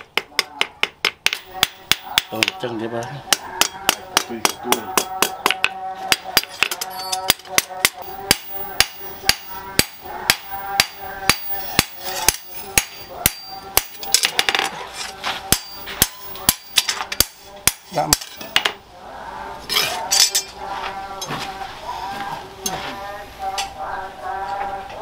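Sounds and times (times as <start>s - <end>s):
hammer ringing on anvil: 6.1s - 14.4s, 15.5s - 18.4s.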